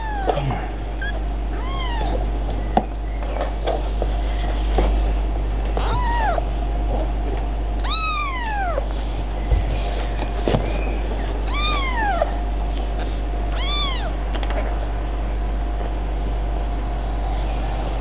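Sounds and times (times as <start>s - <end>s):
kitten meowing: 0.0s - 0.4s, 1.0s - 2.2s, 5.8s - 6.5s, 7.8s - 8.9s, 11.4s - 12.4s, 13.5s - 14.2s.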